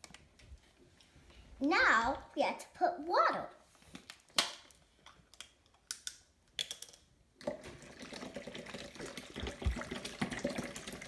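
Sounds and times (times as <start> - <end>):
water running into container: 7.4 - 11.0.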